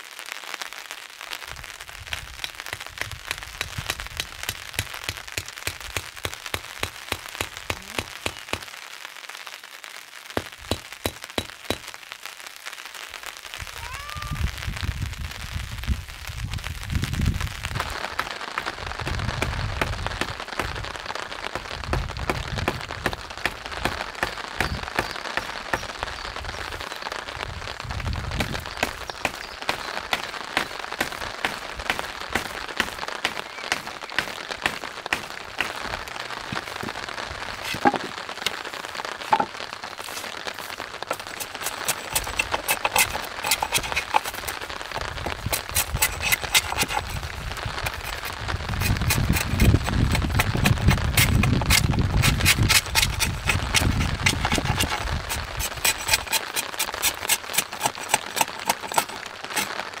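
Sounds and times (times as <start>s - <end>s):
knife carving wood: 37.6s - 38.0s, 41.1s - 59.8s.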